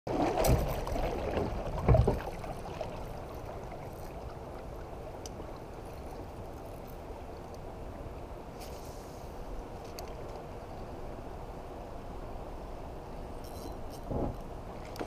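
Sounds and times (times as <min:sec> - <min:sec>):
water lapping against a kayak: 0:00.1 - 0:08.2
flowing water rushing: 0:00.1 - 0:12.5.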